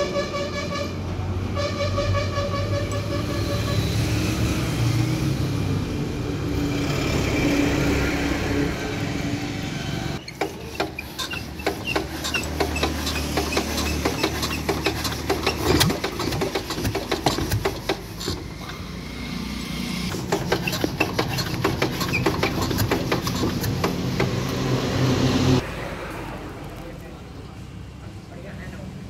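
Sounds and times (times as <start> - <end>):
vehicle horn: 0.0 - 4.1
mechanical noise: 10.2 - 24.4.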